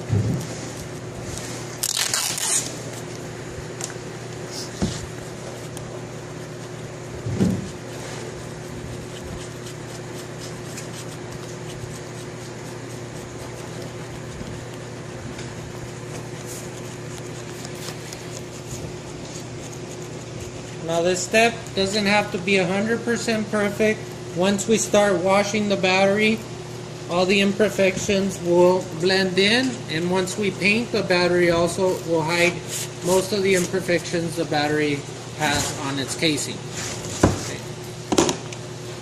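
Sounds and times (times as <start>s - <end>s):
steady low hum: 0.0s - 39.0s
paper label scraping: 0.4s - 3.2s, 7.5s - 22.4s.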